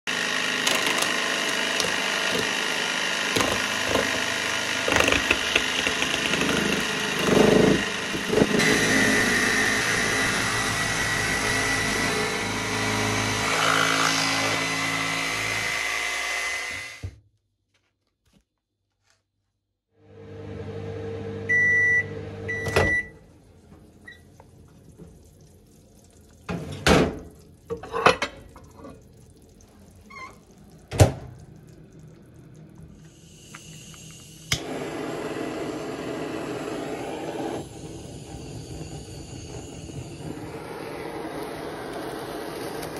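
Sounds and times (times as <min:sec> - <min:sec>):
electric jigsaw sawing: 0:00.1 - 0:17.0, 0:34.5 - 0:42.9
microwave oven humming: 0:20.0 - 0:25.0.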